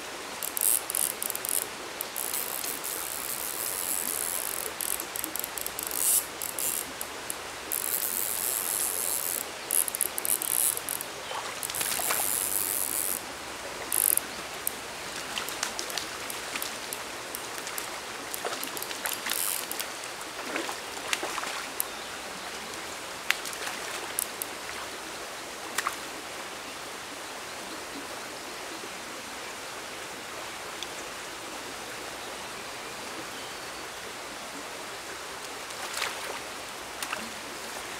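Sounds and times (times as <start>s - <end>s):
stream running over rocks: 0.0s - 37.9s
sharp ticks: 0.4s - 13.2s, 13.9s - 14.8s, 15.4s - 19.9s
fly reel drag rasping: 0.4s - 14.8s, 15.4s - 20.0s, 24.1s - 24.5s.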